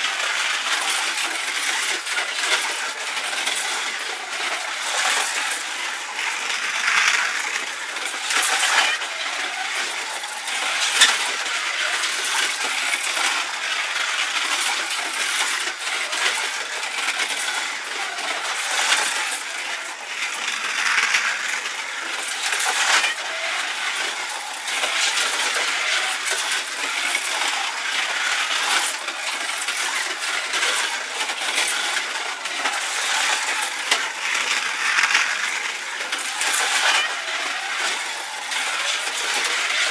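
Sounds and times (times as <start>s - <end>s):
cars rattling along track: 0.0s - 39.9s
slot car motors whining: 0.0s - 39.9s.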